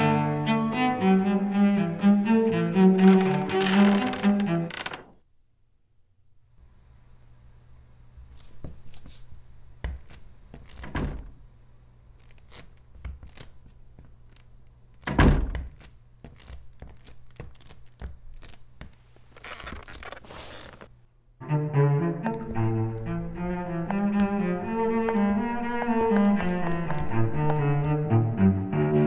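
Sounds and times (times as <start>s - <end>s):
cello playing: 0.0s - 4.8s, 21.4s - 29.0s
heavy wooden door thunk: 15.1s - 15.7s
short rustle: 19.0s - 20.9s.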